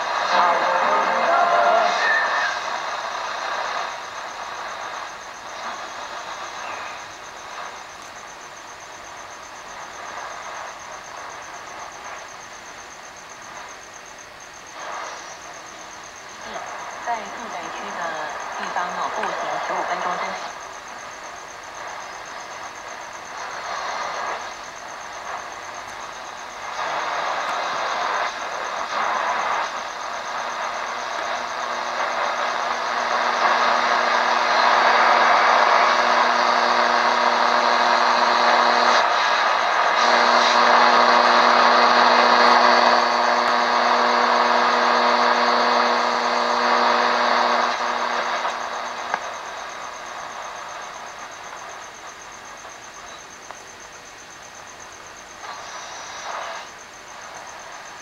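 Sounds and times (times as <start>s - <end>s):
radio static: 0.0s - 58.0s
buzzing hum: 13.4s - 53.3s.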